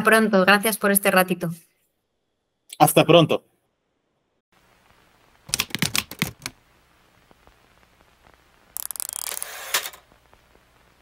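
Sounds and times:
mechanical clicking: 8.8 - 9.9.

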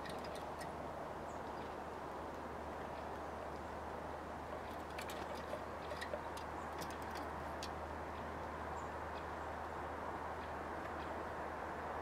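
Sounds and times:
birds pecking at feeder: 4.6 - 7.7.

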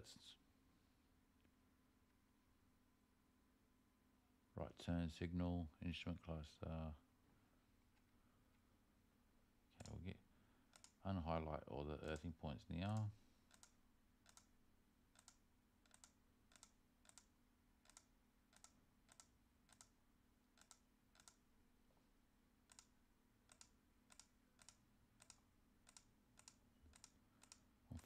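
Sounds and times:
low electrical hum: 0.0 - 28.0
faint computer mouse clicks: 10.7 - 11.0, 13.0 - 14.5, 15.1 - 20.0, 20.6 - 21.4, 22.7 - 22.9, 23.5 - 28.0.

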